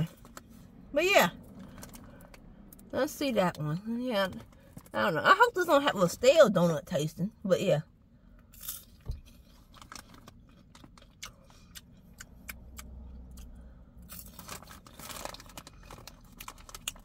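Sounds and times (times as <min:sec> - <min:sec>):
popcorn crunching: 0:08.5 - 0:17.0.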